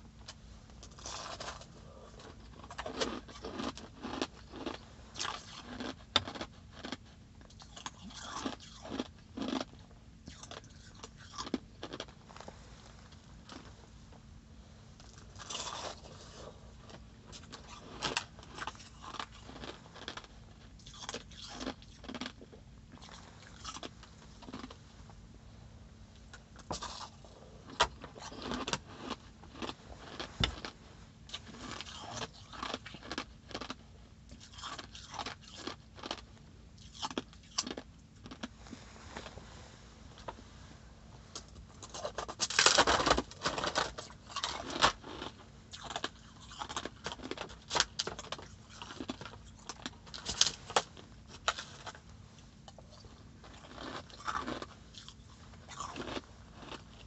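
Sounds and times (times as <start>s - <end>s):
biting and chewing ice: 0.2s - 13.7s, 15.0s - 24.8s, 26.2s - 38.6s, 41.4s - 57.0s
fingers crunching ice: 53.5s - 55.1s.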